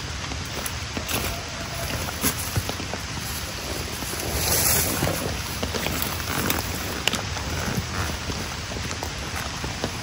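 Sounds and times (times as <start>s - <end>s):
footsteps: 0.0s - 10.0s
steady rain hiss: 0.0s - 10.0s
backpack rustling: 1.0s - 8.6s.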